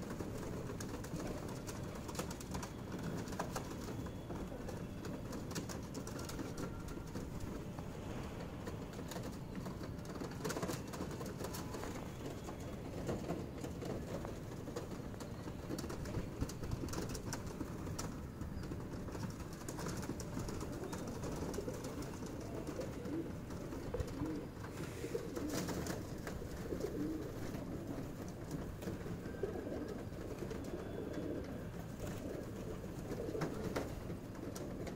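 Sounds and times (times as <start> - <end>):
pigeons cooing: 8.7 - 34.9.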